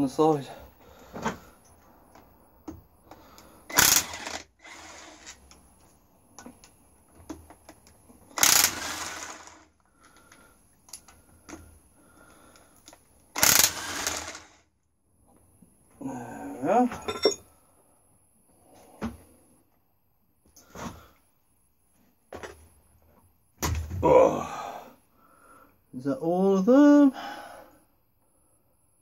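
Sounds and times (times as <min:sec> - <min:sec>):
ratchet clicking: 0:03.7 - 0:05.4, 0:08.4 - 0:09.6, 0:13.4 - 0:14.6
ratchet rasping: 0:03.7 - 0:05.4, 0:08.4 - 0:09.6, 0:13.4 - 0:14.6.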